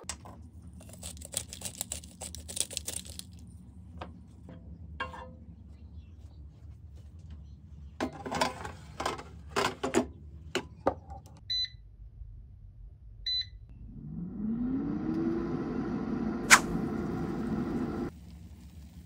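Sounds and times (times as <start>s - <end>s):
air fryer fan whirring: 13.3s - 18.1s.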